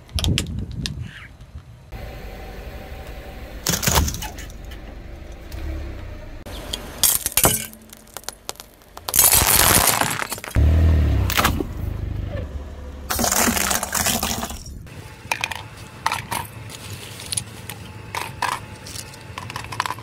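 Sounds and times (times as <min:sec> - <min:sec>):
tyre crushing brittle plastic: 0:07.0 - 0:10.6, 0:13.1 - 0:14.6.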